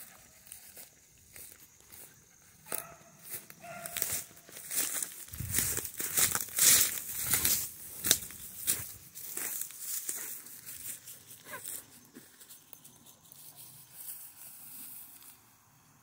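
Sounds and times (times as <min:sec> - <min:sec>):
footsteps crunching dry leaves: 0:00.0 - 0:15.4
swishing through tall grass: 0:03.2 - 0:11.9.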